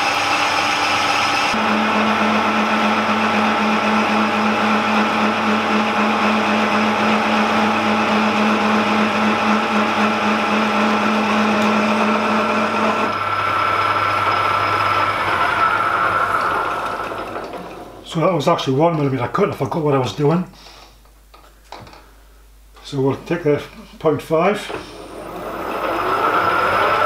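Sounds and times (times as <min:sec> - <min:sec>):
lathe spindle winding down whine: 0:00.0 - 0:18.1, 0:24.7 - 0:27.0
metal lathe motor and gear hum: 0:00.0 - 0:18.1, 0:24.7 - 0:27.0.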